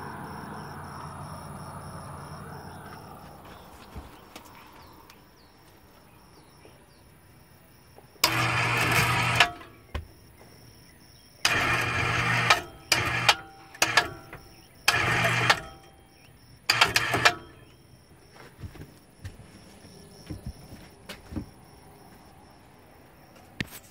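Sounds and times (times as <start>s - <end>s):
electric hoist motor running: 8.2s - 9.9s, 11.4s - 16.0s, 16.7s - 17.7s.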